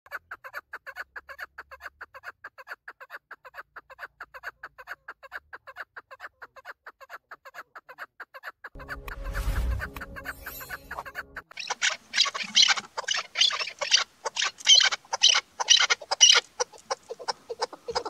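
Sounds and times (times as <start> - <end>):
partridge chuck calls: 11.2 - 18.0.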